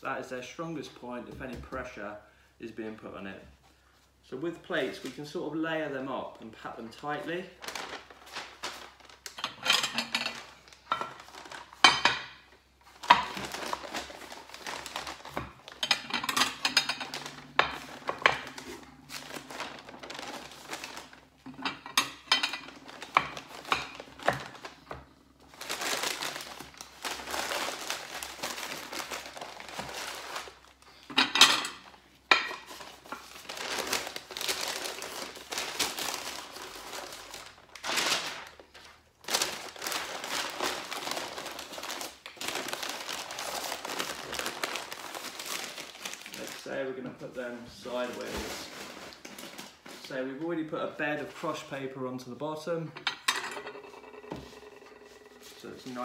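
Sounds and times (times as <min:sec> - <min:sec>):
packing paper rustling and crinkling: 0:06.5 - 0:31.1, 0:31.8 - 0:52.0
plates clinking: 0:53.0 - 0:55.6.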